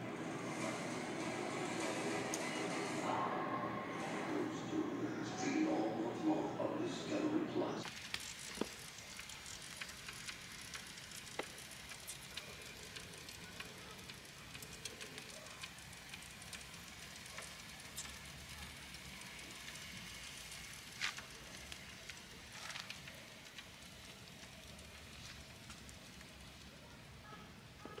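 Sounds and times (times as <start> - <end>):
crackles and pops: 7.8 - 26.8
meat sizzling in smoker: 7.8 - 27.8.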